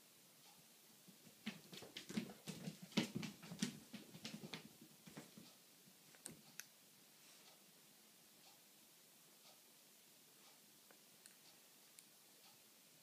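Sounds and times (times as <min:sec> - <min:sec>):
cat paws pattering on tile floor: 0:01.1 - 0:05.6.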